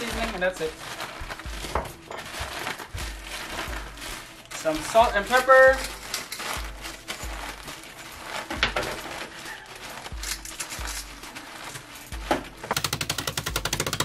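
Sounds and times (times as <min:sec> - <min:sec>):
crumbs crunching: 0:00.0 - 0:12.6
plastic bag crinkling: 0:00.0 - 0:13.0.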